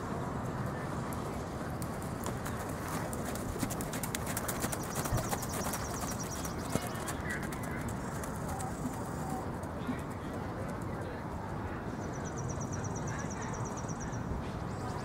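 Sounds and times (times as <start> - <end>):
outdoor background noise: 0.0 - 15.0
horse hoofbeats on dirt: 1.2 - 10.9.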